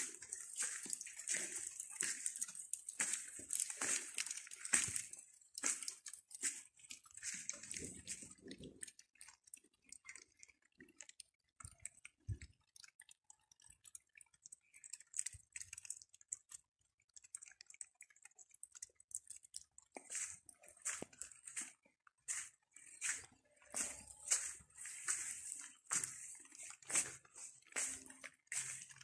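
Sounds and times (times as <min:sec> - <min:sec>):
footsteps on gravel: 0:00.0 - 0:08.4, 0:20.0 - 0:29.0.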